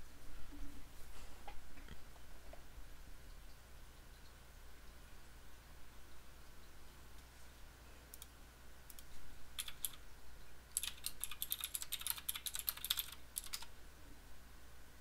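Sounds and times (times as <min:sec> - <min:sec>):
typing on computer keyboard: 0:08.9 - 0:10.0, 0:10.7 - 0:13.7.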